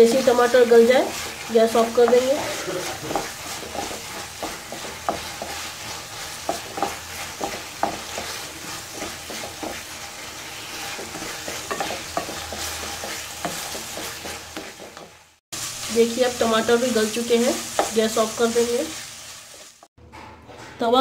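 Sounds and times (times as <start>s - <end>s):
wooden spatula scraping a pan: 0.0s - 15.4s
masala sizzling in a pan: 0.0s - 19.9s.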